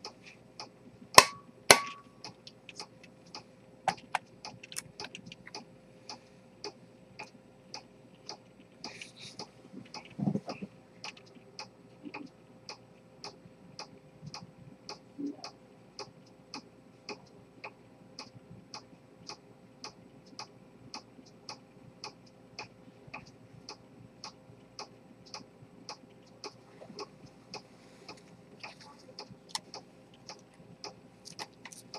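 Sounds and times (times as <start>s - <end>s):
watch ticking rapidly: 9.4s - 28.2s.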